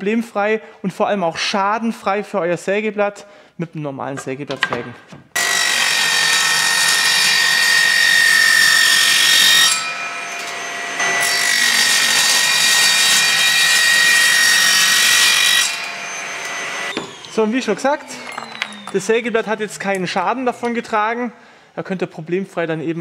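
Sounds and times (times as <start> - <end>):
circular saw running free: 5.4 - 19.4
circular saw cutting metal: 5.4 - 20.0.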